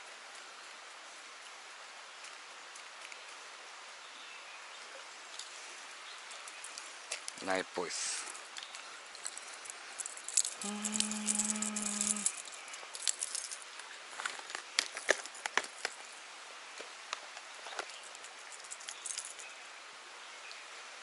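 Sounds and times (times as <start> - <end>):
lures clicking in tackle box: 10.0 - 13.6.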